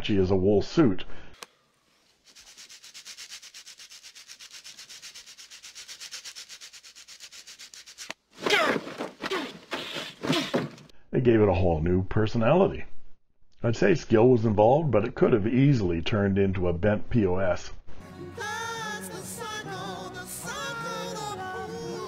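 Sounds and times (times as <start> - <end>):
rapid scratching strokes: 1.9 - 10.8
harsh rasp: 1.9 - 10.9.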